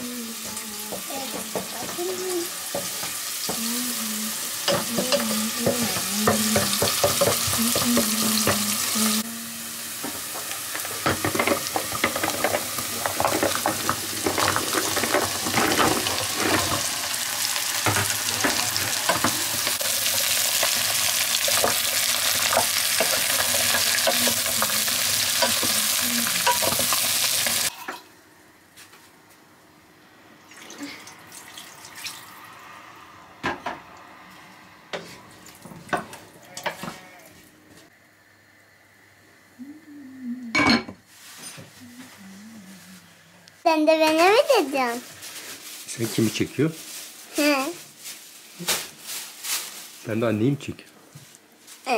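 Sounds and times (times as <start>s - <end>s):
food sizzling in a frying pan: 0.0s - 28.1s, 43.6s - 50.7s, 51.6s - 51.9s
utensil scraping a pan: 10.0s - 28.0s.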